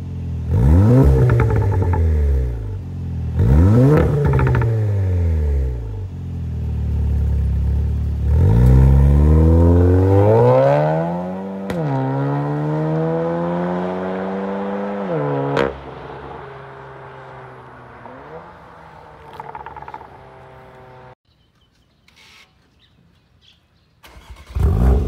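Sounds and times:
car exhaust revving: 0:00.4 - 0:21.2
exhaust crack: 0:03.4 - 0:05.8, 0:15.2 - 0:21.2.

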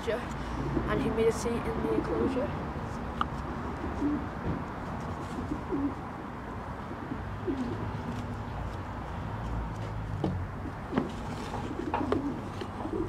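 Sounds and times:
pigeon cooing: 0:03.6 - 0:04.3, 0:05.2 - 0:06.0, 0:07.1 - 0:07.9, 0:11.6 - 0:13.0.

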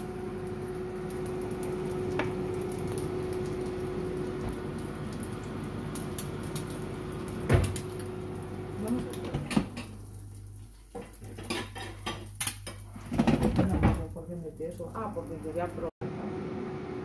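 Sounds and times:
air fryer humming: 0:00.0 - 0:17.0.

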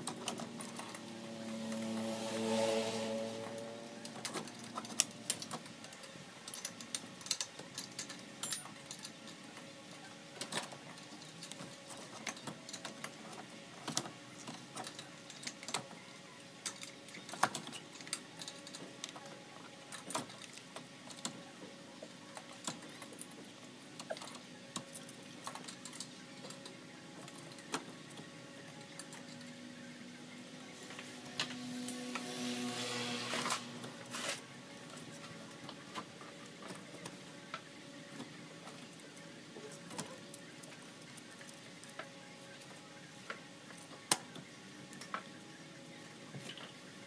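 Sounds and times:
light clicks and knocks of handling parts: 0:04.1 - 0:16.0.

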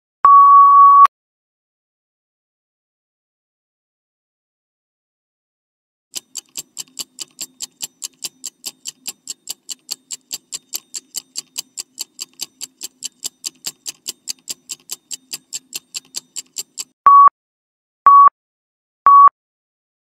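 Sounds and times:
rapid clock ticks: 0:06.1 - 0:17.0.

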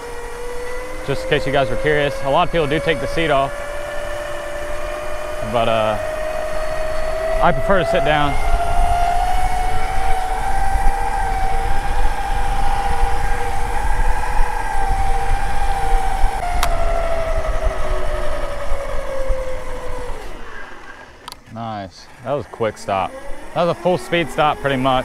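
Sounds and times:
wind rumble on microphone: 0:00.0 - 0:20.2
electric scooter motor whine: 0:00.0 - 0:25.0.

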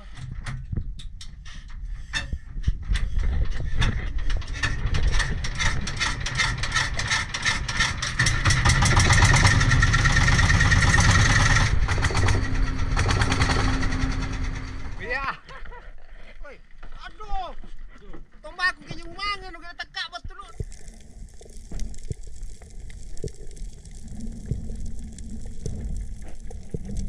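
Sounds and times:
boat engine running: 0:08.1 - 0:15.0.

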